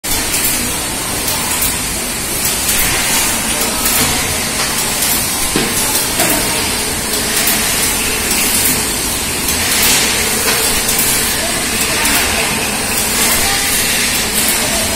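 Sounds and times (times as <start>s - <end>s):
bottling machinery running: 0.1s - 14.9s.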